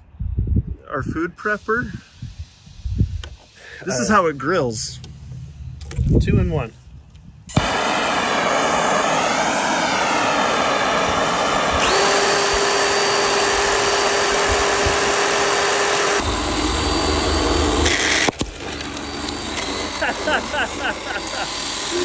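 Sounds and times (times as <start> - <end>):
chainsaw cutting wood: 7.5 - 22.0
electric chainsaw whine: 7.5 - 22.0.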